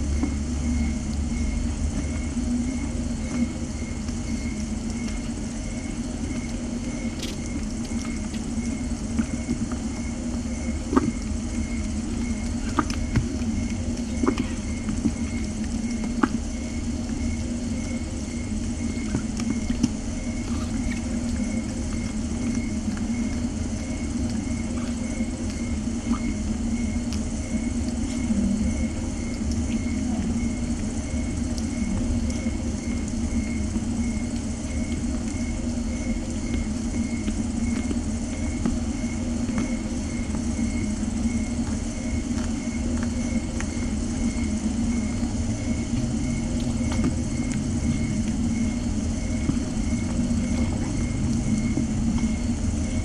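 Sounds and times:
steady low rumble: 0.0s - 53.0s
faint ticks: 0.1s - 30.4s.

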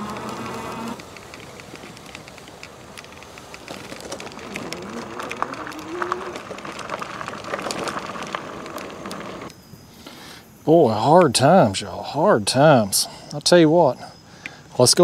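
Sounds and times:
electric motor whine: 0.0s - 1.0s
ticks and rattles: 0.0s - 9.5s
tyres crunching on gravel: 0.0s - 9.5s.

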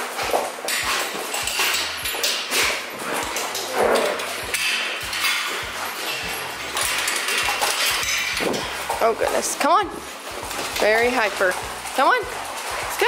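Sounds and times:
metal kennel pens rattling: 0.0s - 13.0s.

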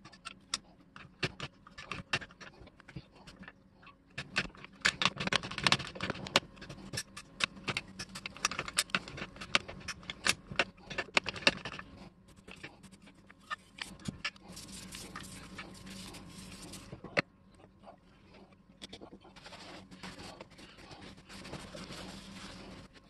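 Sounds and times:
soft hissing rub: 14.4s - 17.0s, 19.4s - 23.0s.

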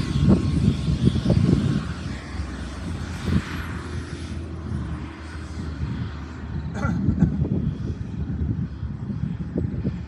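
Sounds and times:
helicopter turbine and rotor: 0.0s - 10.0s
high turbine whine: 0.0s - 10.0s
wind rumble on microphone: 0.0s - 10.0s.

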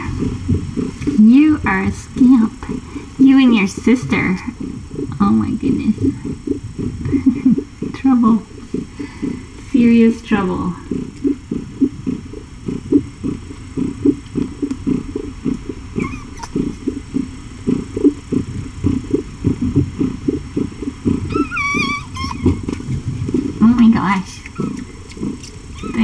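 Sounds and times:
cat purring loudly: 0.0s - 26.0s
kitten mewing: 16.0s - 16.6s, 21.3s - 22.7s.

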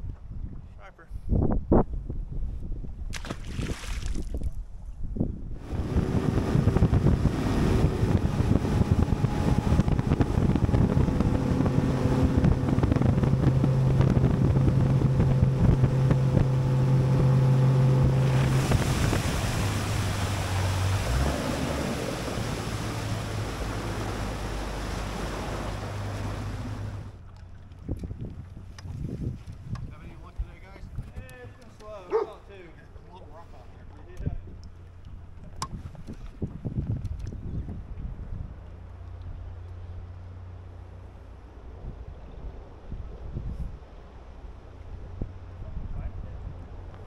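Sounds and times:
wind and water rushing: 3.0s - 4.8s, 5.5s - 32.5s
outboard motor running: 5.6s - 29.9s, 31.0s - 32.5s.

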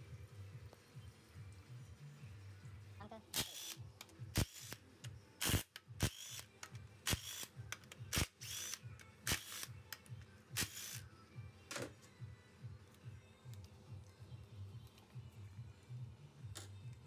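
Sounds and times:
ratchet wrench bursts: 3.4s - 3.8s, 4.4s - 4.8s, 5.4s - 9.8s, 10.6s - 11.0s.

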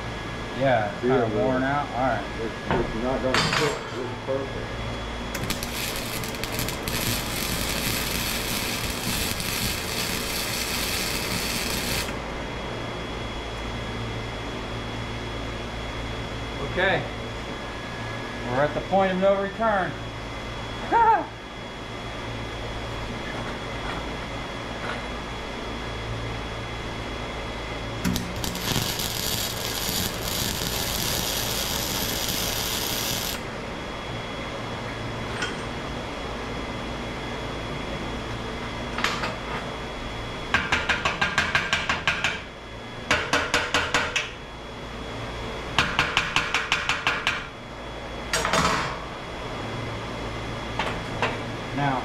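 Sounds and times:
welder arc crackling and popping: 5.3s - 12.2s, 28.0s - 33.6s.

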